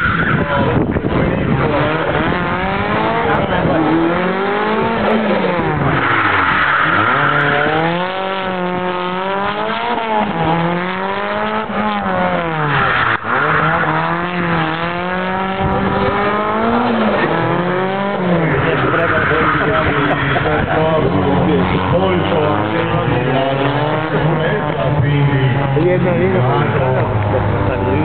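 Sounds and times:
car engine revving: 0:00.0 - 0:28.0
tyres squealing: 0:03.7 - 0:10.7.

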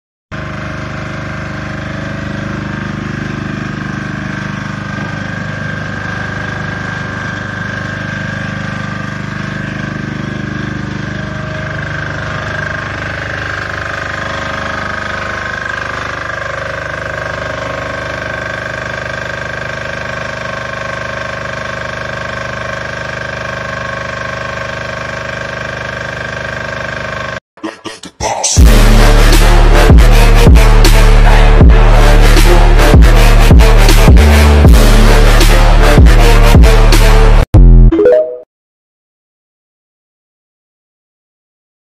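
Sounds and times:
generator engine hum: 0:00.4 - 0:37.4
high steady tone: 0:37.9 - 0:38.5.

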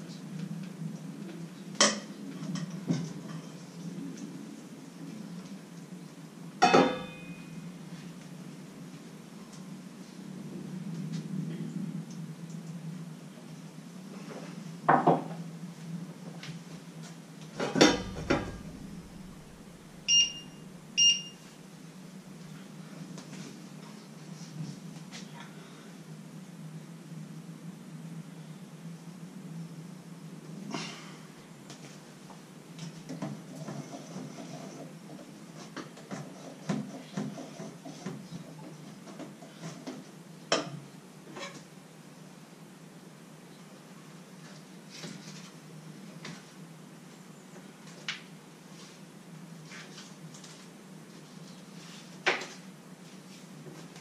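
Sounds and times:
steady low hum: 0:00.0 - 0:35.6
knock: 0:17.8 - 0:18.9
short electronic beeps: 0:20.0 - 0:21.4.

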